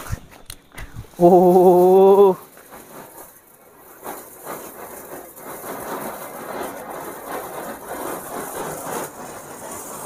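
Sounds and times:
firework fountain hissing and crackling: 0.0s - 10.0s.

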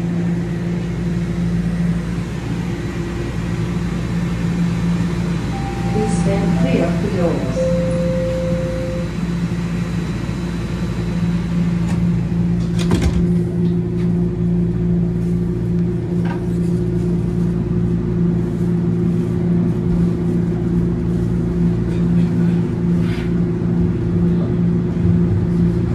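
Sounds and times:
train motor hum: 0.0s - 17.4s
higher-pitched hum: 5.0s - 11.3s.

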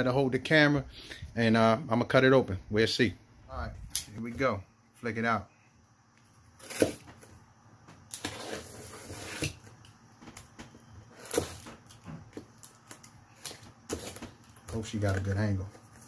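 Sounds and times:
knife slicing packing tape: 6.6s - 7.1s, 8.1s - 9.7s, 11.1s - 12.0s.

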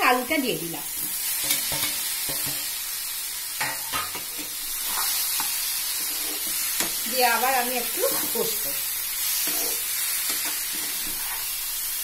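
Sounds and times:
paste sizzling in oil: 0.0s - 12.0s
metal spatula scraping pan: 1.0s - 2.7s, 3.6s - 7.1s, 7.9s - 11.7s.

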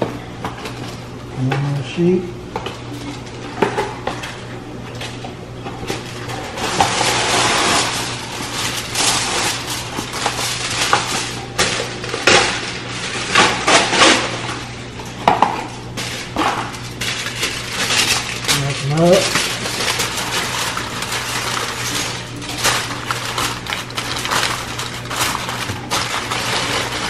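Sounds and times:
aluminium foil crinkling: 5.8s - 27.0s.

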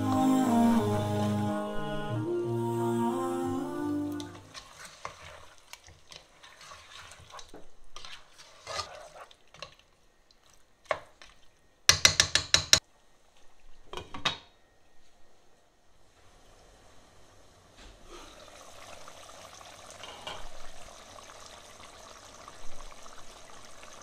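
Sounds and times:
spoon scraping a pot: 4.5s - 9.8s.

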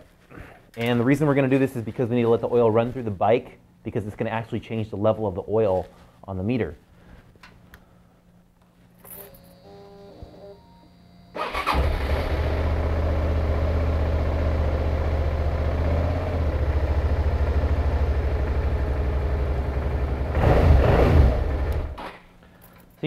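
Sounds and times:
faint high whine: 8.9s - 12.0s
motorcycle engine idling: 12.3s - 20.4s.

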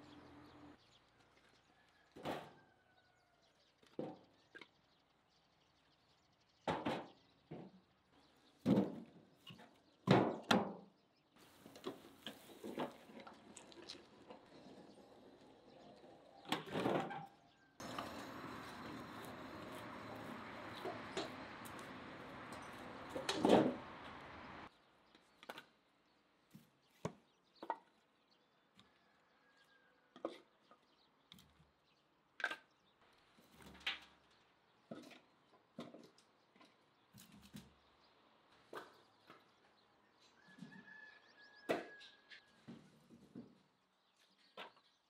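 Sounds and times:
outdoor noise: 0.0s - 45.0s
logs knocking into wheelbarrow: 17.8s - 24.2s.

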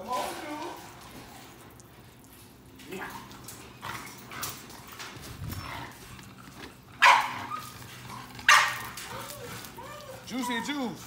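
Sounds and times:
dog noises: 2.8s - 11.0s.

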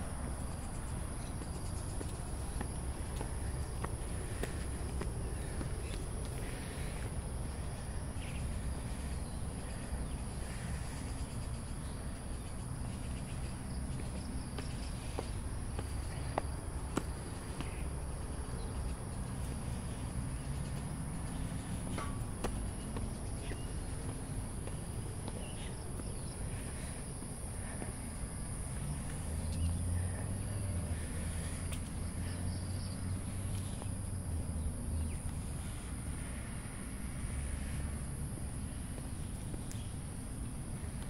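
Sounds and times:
low background rumble: 0.0s - 31.6s
insects droning: 0.0s - 41.0s
footsteps: 0.9s - 7.1s, 12.9s - 17.9s, 19.3s - 26.9s.

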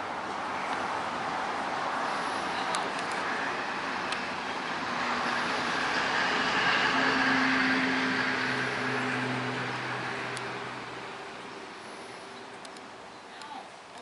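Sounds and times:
distant motor traffic: 0.0s - 14.0s
low engine hum: 0.0s - 14.0s
faint clicks: 12.5s - 14.0s.

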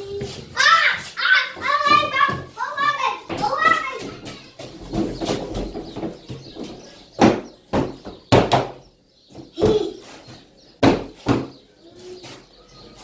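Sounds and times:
shuffling thumps: 0.0s - 13.0s
sharp knocks and bangs: 1.5s - 11.7s.

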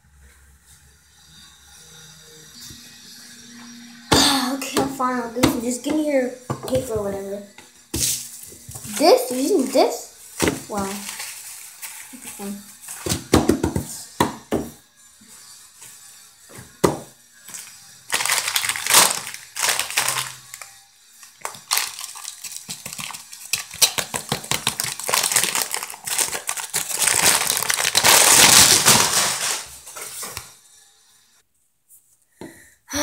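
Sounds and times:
chip bag crinkling: 10.7s - 13.0s, 18.1s - 29.7s.

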